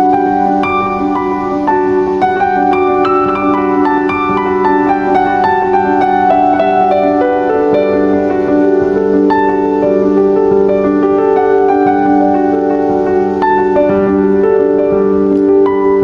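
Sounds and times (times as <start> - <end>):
instrumental background music: 0.0 - 16.0.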